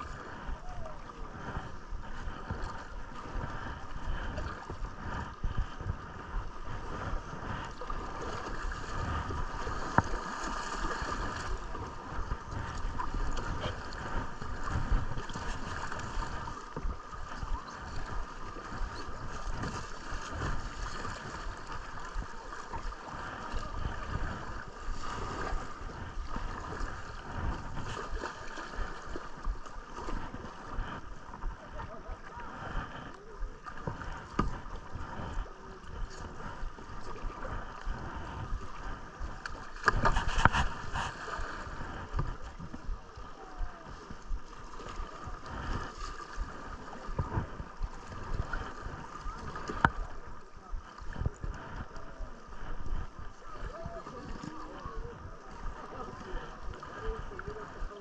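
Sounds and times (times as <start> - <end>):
water lapping and gurgling: 0.0 - 58.0
wind thumps on microphone: 39.8 - 42.8.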